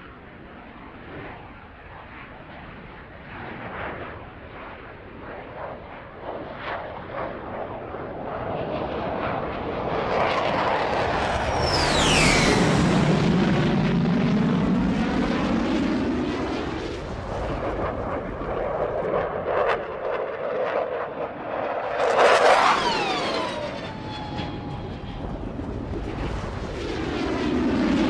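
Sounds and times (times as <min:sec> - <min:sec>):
fighter jet passing: 0:03.4 - 0:28.0
jet rumble: 0:08.3 - 0:28.0.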